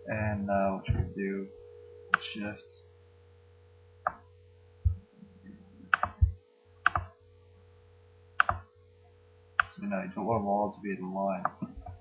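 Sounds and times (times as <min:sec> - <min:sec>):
steady electrical hum: 0:00.0 - 0:12.0
dull low thumps: 0:00.3 - 0:02.4, 0:03.7 - 0:07.0
computer mouse clicking: 0:05.9 - 0:07.2, 0:08.4 - 0:08.7.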